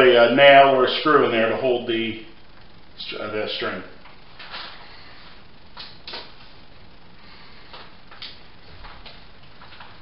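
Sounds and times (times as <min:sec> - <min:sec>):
low background hiss: 0:00.0 - 0:10.0
rustles and scuffs of person moving: 0:04.1 - 0:06.7, 0:07.3 - 0:10.0.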